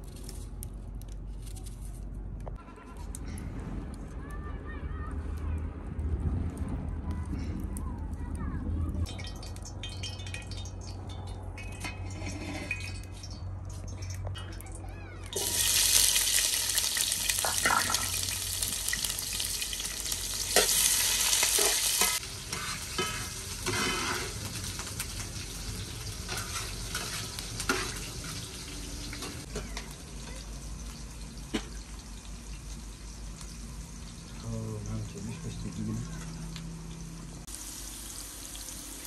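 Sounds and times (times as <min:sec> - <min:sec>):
food sizzling in hot oil: 0:09.1 - 0:11.0, 0:15.3 - 0:39.0.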